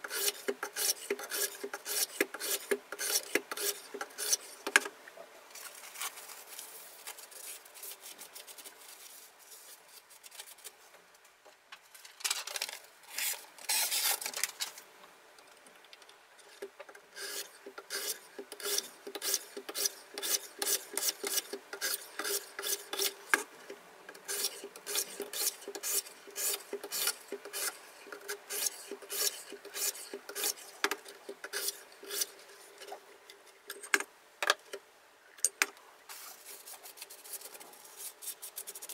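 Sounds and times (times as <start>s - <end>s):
sharpening stone rasping on blade: 0.1s - 4.5s, 17.2s - 23.2s, 24.3s - 27.8s, 28.4s - 30.6s.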